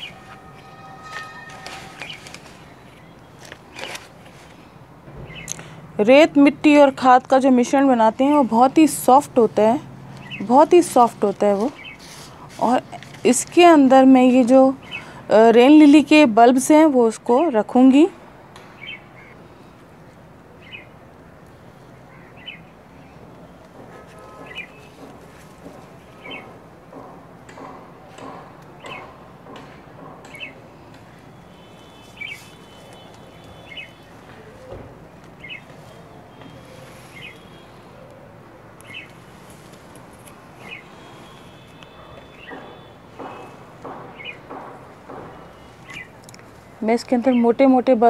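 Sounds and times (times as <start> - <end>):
bird chirping: 0.0 - 4.0, 5.2 - 5.8, 11.7 - 12.1, 20.6 - 20.9, 24.3 - 25.1, 31.2 - 34.8, 35.4 - 38.1, 38.8 - 39.2, 40.6 - 46.2.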